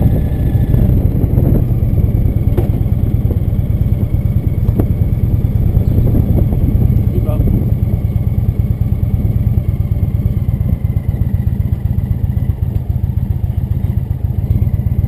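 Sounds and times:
motorcycle engine low throb: 0:00.0 - 0:15.0.

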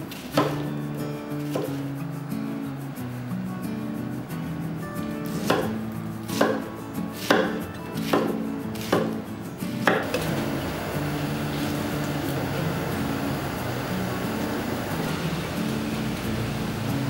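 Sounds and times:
knife chopping on wooden board: 0:00.2 - 0:00.7, 0:01.4 - 0:01.8, 0:05.3 - 0:09.2, 0:09.8 - 0:10.2.

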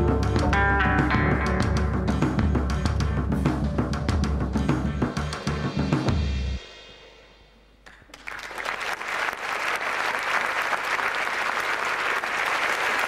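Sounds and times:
audience applauding: 0:07.9 - 0:13.0.

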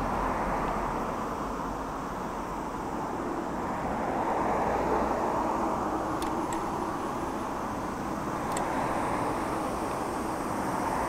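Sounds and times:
road traffic noise: 0:00.0 - 0:11.0
faint sharp ticks: 0:08.5 - 0:08.8.

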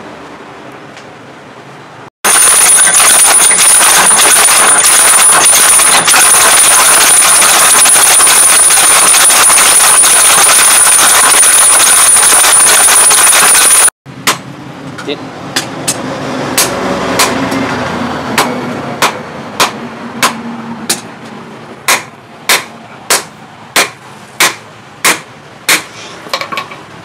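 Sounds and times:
machine noise with high whine: 0:02.2 - 0:14.0.

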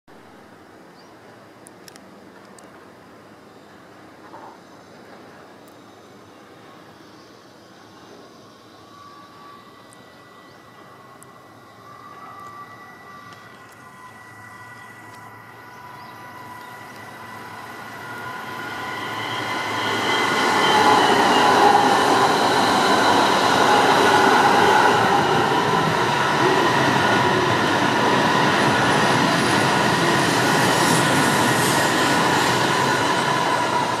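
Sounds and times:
train rushing past: 0:07.9 - 0:34.0
high whining tones: 0:08.0 - 0:34.0.

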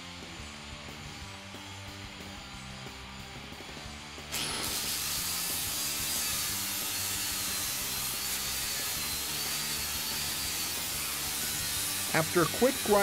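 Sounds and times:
angle grinder grinding metal: 0:04.3 - 0:13.0.

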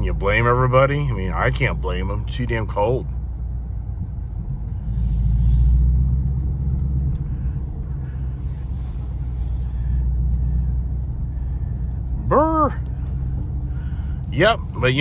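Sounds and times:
car engine rumbling: 0:00.0 - 0:15.0
hiss: 0:04.9 - 0:06.0.

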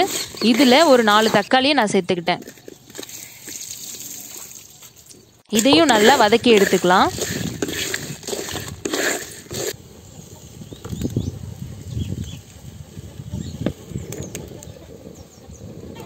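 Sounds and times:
spatula stirring in clay pot: 0:00.0 - 0:04.2, 0:05.0 - 0:09.8
wood fire burning: 0:02.4 - 0:16.0.

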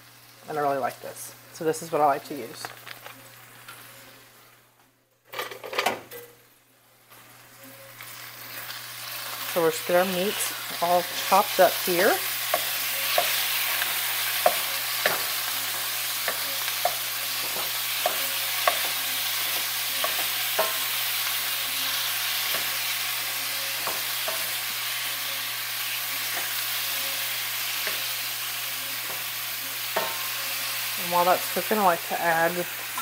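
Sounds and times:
meat sizzling in a skillet: 0:07.1 - 0:33.0.

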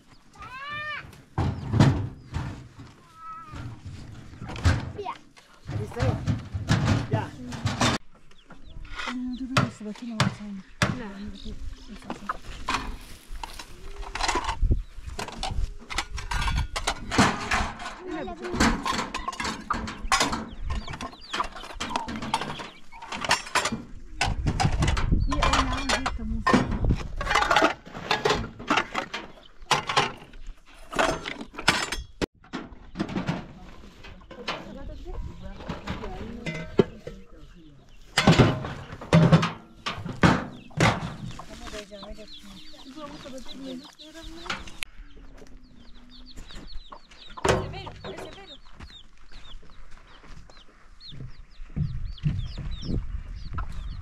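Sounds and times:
chickens clucking: 0:00.0 - 0:31.8, 0:32.7 - 0:54.0
low thuds: 0:51.0 - 0:54.0.

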